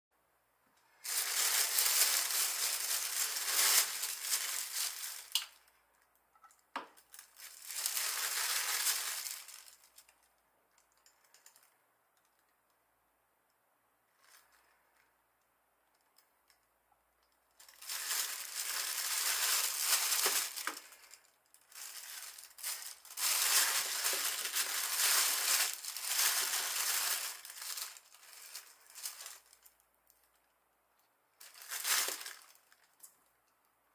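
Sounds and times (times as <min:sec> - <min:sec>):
plastic bag rustling: 0:00.8 - 0:05.6, 0:06.9 - 0:10.1, 0:17.6 - 0:29.8, 0:31.4 - 0:33.1.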